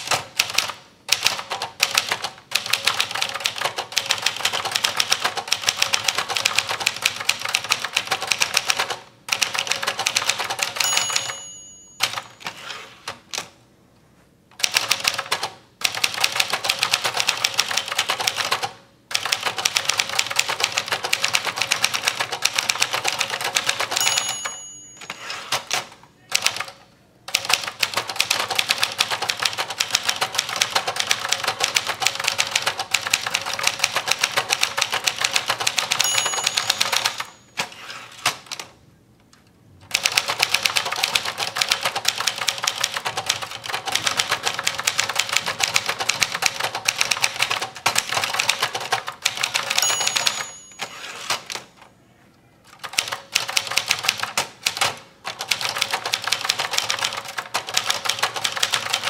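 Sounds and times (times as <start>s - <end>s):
manual typewriter clatter: 0.0s - 13.5s, 14.6s - 38.7s, 39.9s - 51.9s, 52.6s - 59.0s
typewriter margin bell: 9.5s - 12.8s, 20.8s - 26.6s, 35.0s - 38.0s, 49.3s - 51.8s.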